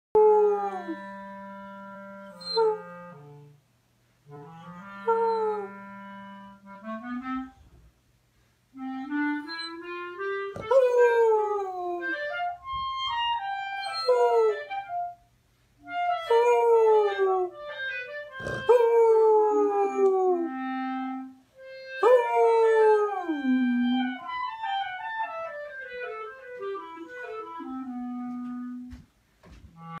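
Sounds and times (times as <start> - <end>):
clarinet notes: 0.2 - 3.6, 4.2 - 8.0, 8.8 - 30.0
dog howling: 10.6 - 12.2, 18.4 - 20.6, 22.0 - 24.2.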